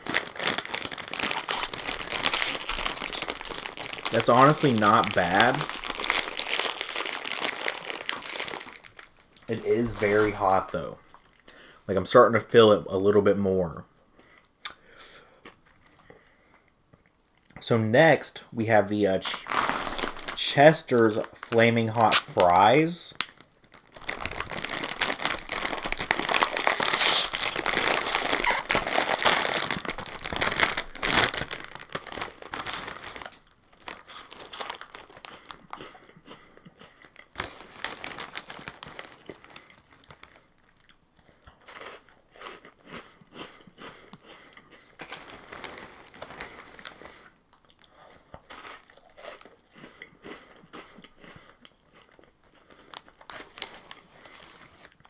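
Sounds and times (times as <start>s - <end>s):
crunching of fries being eaten: 0.0s - 10.6s, 19.4s - 20.4s, 23.2s - 55.0s
snack bag crinkling: 0.0s - 11.5s, 19.2s - 43.0s, 44.0s - 49.8s, 50.4s - 55.0s.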